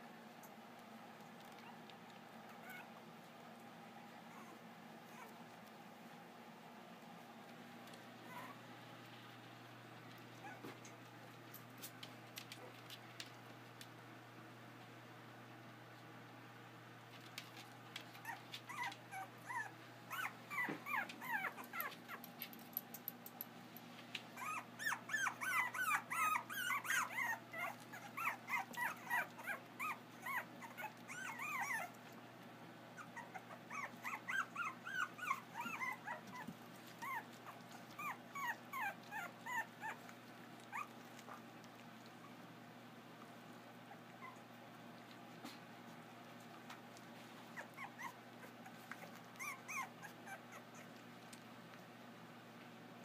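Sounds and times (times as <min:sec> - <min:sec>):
puppies whining and yipping: 0:01.5 - 0:03.0, 0:04.2 - 0:05.6, 0:08.2 - 0:08.6, 0:10.4 - 0:11.0, 0:18.0 - 0:22.3, 0:24.4 - 0:32.2, 0:32.9 - 0:41.5, 0:43.8 - 0:44.6, 0:46.4 - 0:51.1.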